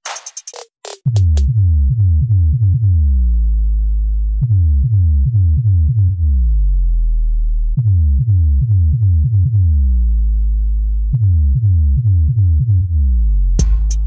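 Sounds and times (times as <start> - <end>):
held deep bass notes: 1.1 - 14.0
deep electronic bass hits: 12.4 - 14.0.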